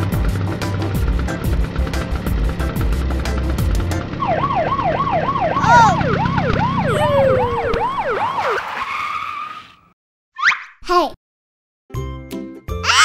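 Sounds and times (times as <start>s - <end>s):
police siren yelping: 4.2s - 9.0s.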